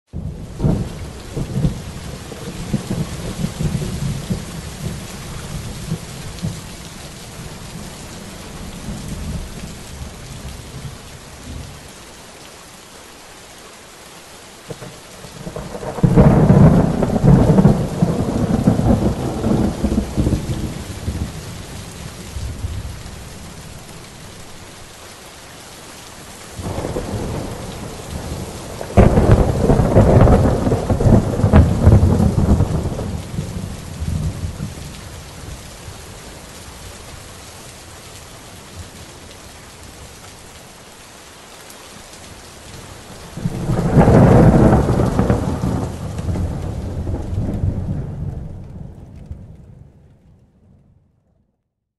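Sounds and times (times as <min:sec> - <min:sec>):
steady rain: 0:00.1 - 0:51.0
thunder rolling: 0:15.4 - 0:21.7, 0:26.6 - 0:34.9, 0:43.4 - 0:49.9.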